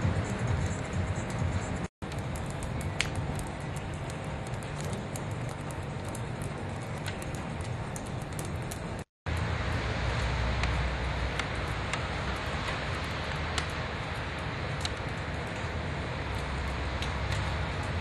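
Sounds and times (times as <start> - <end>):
traffic rumble: 0.0 - 18.0
sharp ticks: 0.1 - 15.7.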